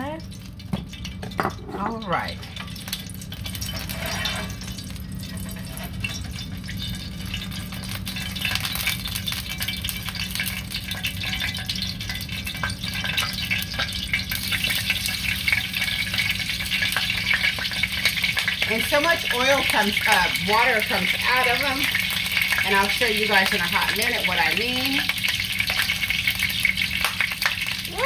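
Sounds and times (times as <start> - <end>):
oil sizzling in a frying pan: 0.0 - 28.0
utensil stirring in a bowl: 3.6 - 7.4.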